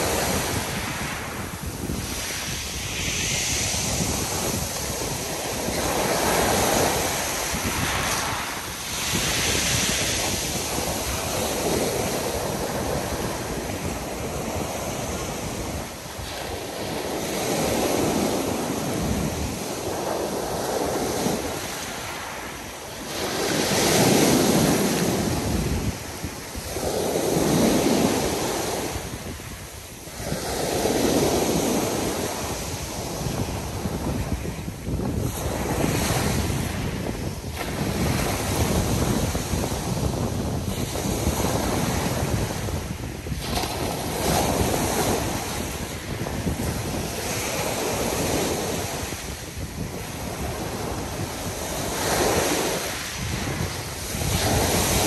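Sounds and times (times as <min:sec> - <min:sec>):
waves breaking on pebble beach: 0:00.0 - 0:55.0.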